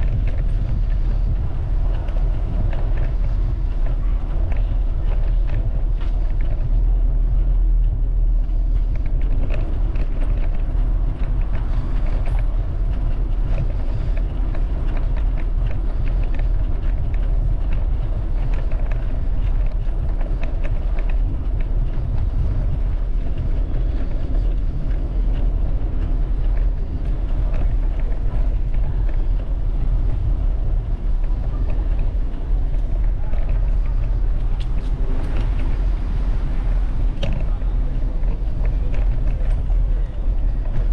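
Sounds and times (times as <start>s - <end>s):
bicycle riding street noise: 0.0s - 40.9s
faint clicks and rattles: 0.0s - 40.9s.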